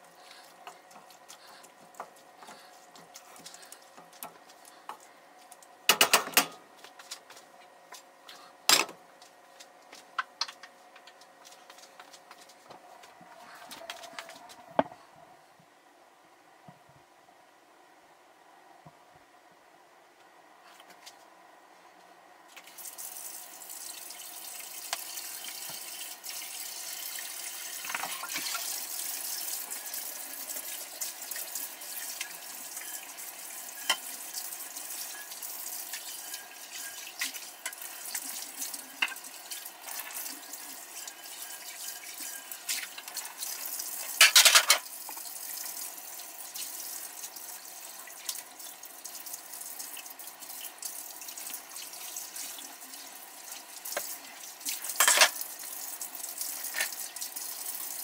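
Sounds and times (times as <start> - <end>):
faucet running into sink: 22.6 - 58.0.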